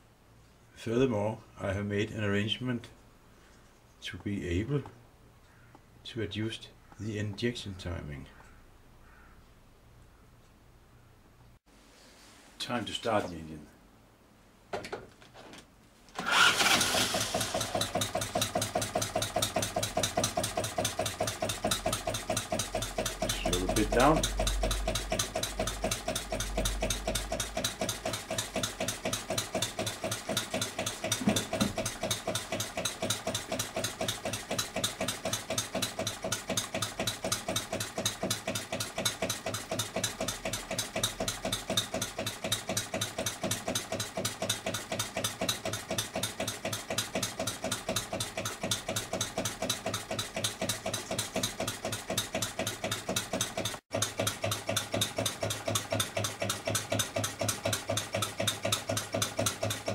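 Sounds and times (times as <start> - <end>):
model diesel engine running: 16.2 - 59.9.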